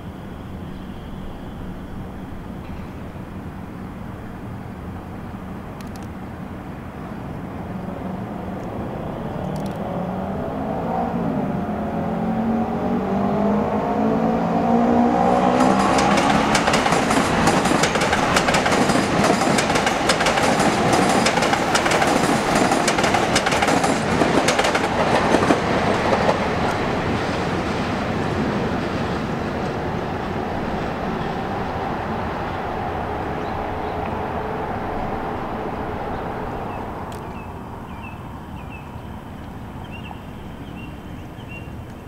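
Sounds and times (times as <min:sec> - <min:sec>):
electric train whine: 0:00.0 - 0:42.0
steel wheels on rail clicking: 0:15.6 - 0:27.9.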